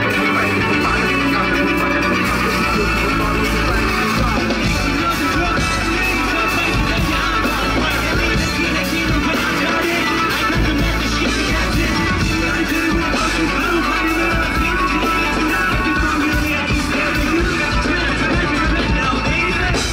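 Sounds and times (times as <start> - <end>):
live pop band over pa: 0.0 - 19.9.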